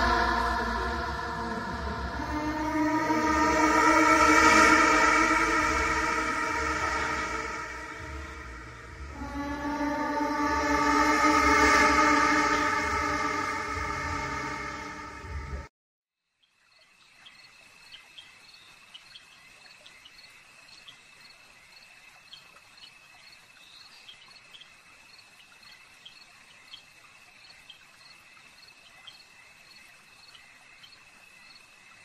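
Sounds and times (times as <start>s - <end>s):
crickets chirping: 16.6s - 32.0s.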